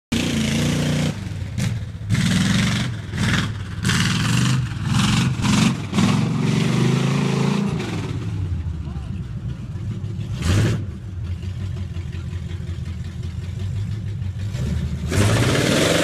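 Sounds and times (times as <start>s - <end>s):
truck engine revving hard: 0.1s - 8.7s, 9.5s - 11.9s, 14.4s - 16.0s.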